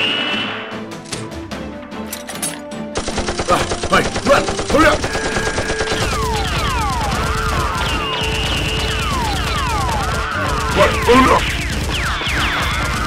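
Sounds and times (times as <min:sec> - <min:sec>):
rapid automatic gunfire: 0:03.0 - 0:13.0.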